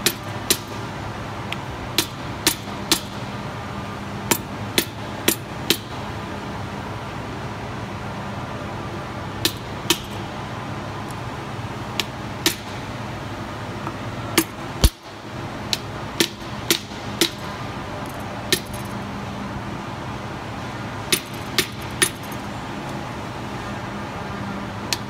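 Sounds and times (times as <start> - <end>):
hammer striking metal seal: 21.1 - 22.4.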